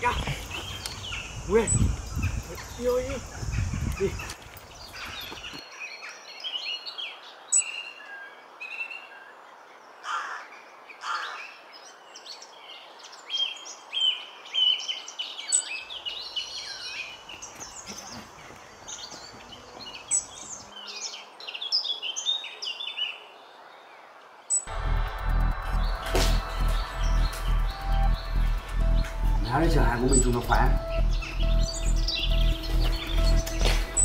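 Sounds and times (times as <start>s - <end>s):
small birds chirping: 0.0s - 24.7s, 25.7s - 34.0s.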